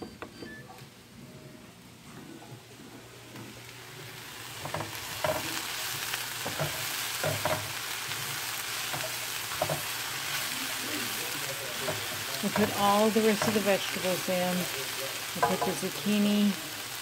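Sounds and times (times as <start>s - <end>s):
vegetables sizzling in a skillet: 3.5s - 17.0s
wooden spoon scraping a pan: 4.6s - 10.6s, 11.7s - 14.0s.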